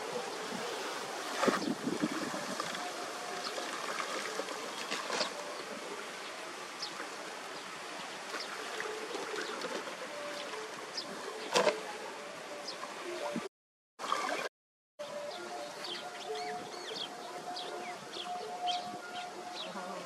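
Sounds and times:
water running and trickling: 0.0 - 13.4
pole splashing in water: 1.2 - 5.5, 11.4 - 11.9.

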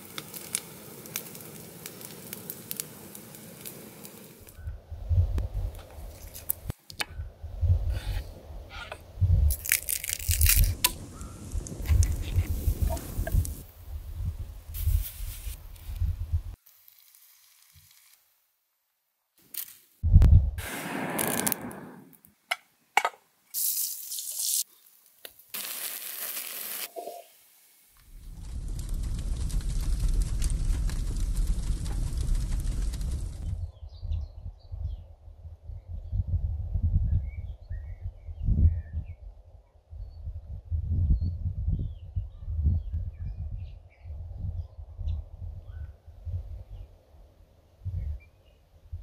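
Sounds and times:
wood fire crackling and popping: 0.0 - 4.6, 9.5 - 13.7, 20.8 - 21.8, 28.0 - 33.6
low fire rumble: 0.0 - 16.6, 20.0 - 22.0, 28.0 - 37.3.

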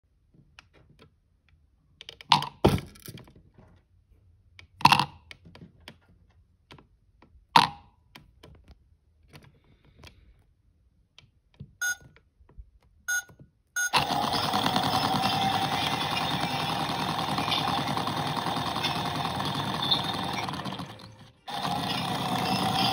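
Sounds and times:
short electronic beeps: 11.8 - 12.0, 13.1 - 14.0.

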